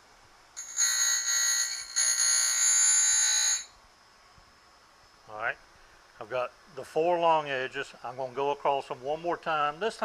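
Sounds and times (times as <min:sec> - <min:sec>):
grinder wheel screeching on metal: 0:02.6 - 0:03.7.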